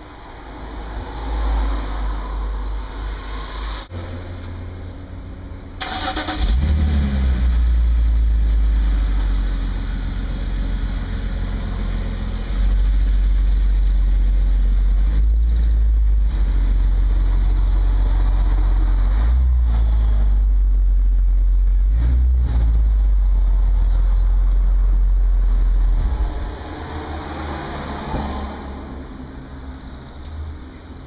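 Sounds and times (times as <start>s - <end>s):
car engine starting and idling: 3.9s - 26.9s
car pulling away: 5.6s - 30.7s.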